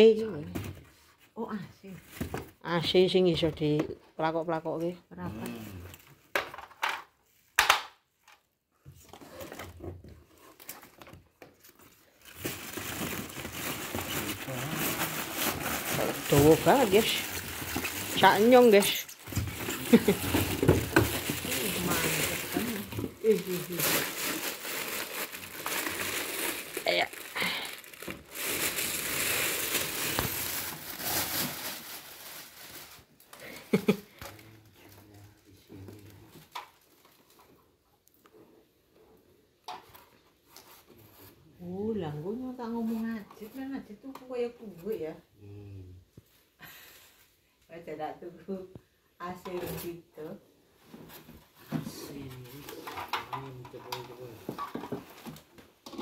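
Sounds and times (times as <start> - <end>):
plastic crinkling: 10.4 - 35.1
plastic bag rustling: 11.6 - 34.0
packaging scraping: 12.1 - 32.8.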